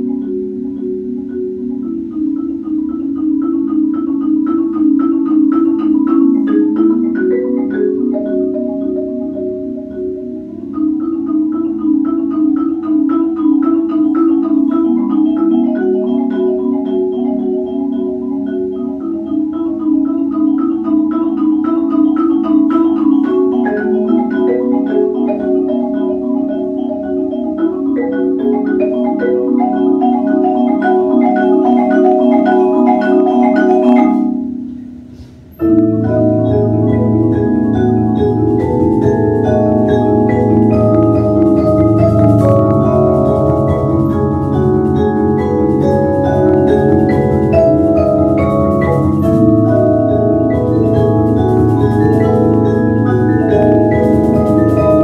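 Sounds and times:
marimba ensemble playing: 0.0s - 55.0s.

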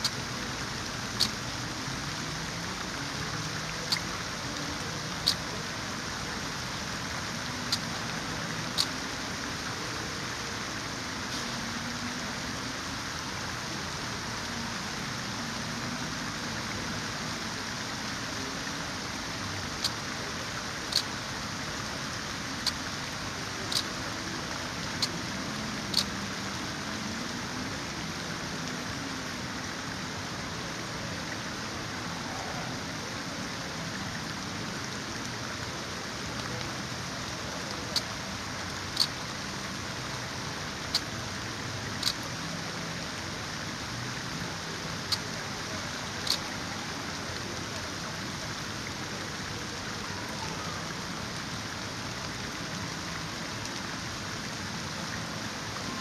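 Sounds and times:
steady rain hiss: 0.0s - 56.0s
sharp high ticks: 1.1s - 1.5s, 3.7s - 4.2s, 5.2s - 5.5s, 7.6s - 8.9s, 20.9s - 21.2s, 23.5s - 24.2s, 24.8s - 26.2s, 38.8s - 39.2s, 41.9s - 42.4s, 46.2s - 46.5s.

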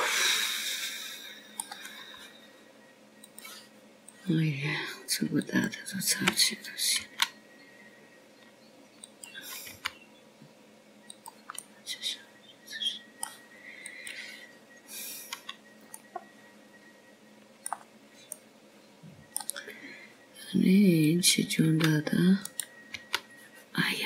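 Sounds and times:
mouse and keyboard clicks: 11.1s - 11.7s, 17.6s - 18.4s.

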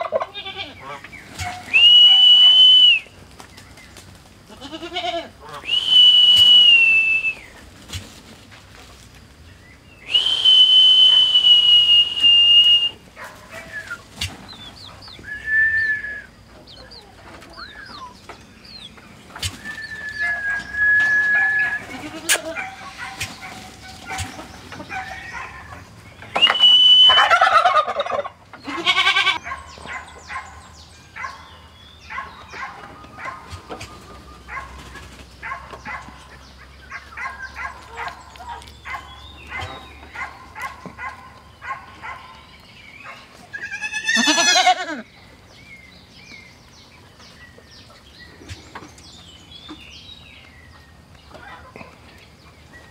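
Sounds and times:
turkeys gobbling: 0.0s - 4.3s, 5.4s - 8.8s, 10.1s - 30.5s, 32.1s - 42.4s, 51.3s - 52.8s.

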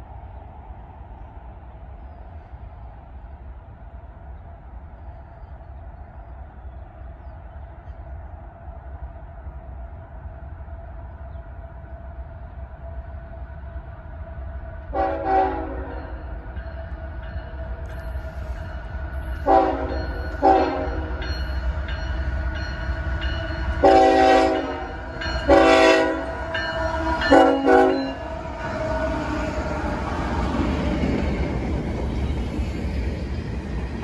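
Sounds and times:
low train rumble: 0.0s - 34.0s
train air horn blasts: 14.9s - 16.3s, 19.4s - 21.2s, 23.8s - 29.9s.

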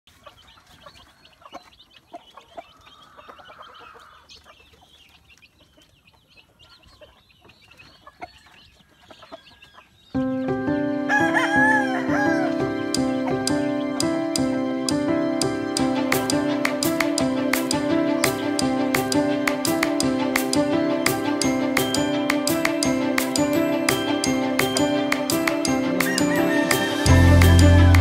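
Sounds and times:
chicks peeping: 0.1s - 15.0s
loud instrumental music: 12.2s - 28.0s.

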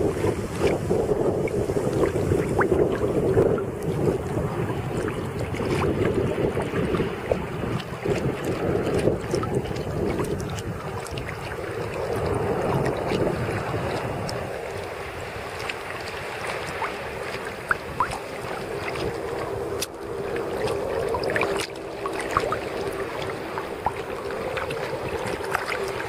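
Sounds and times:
sea water sloshing and splashing: 0.0s - 26.0s
wind buffeting microphone: 0.0s - 26.0s
water drips: 0.6s - 26.0s.

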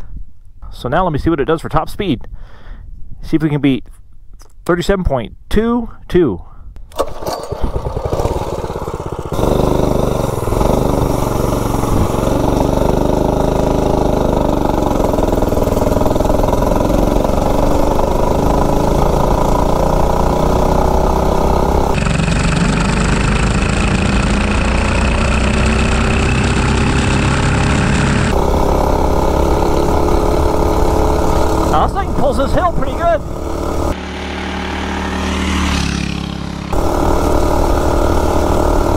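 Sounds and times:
mini bike engine full throttle: 6.9s - 38.9s
wind rushing over microphone: 10.4s - 12.7s.

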